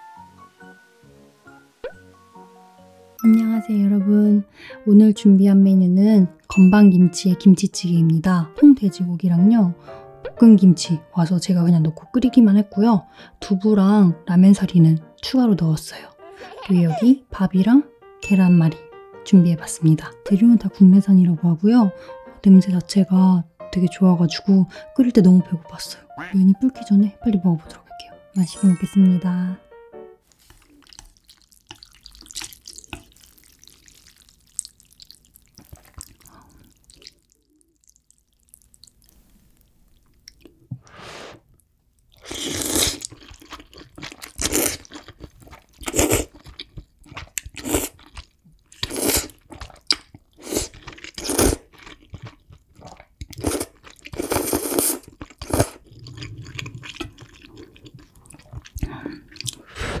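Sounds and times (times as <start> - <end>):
wet chewing: 30.3 - 40.6, 42.0 - 59.7
person slurping noodles: 40.8 - 41.4, 42.2 - 43.1, 48.8 - 49.8, 50.4 - 51.6, 52.8 - 60.0.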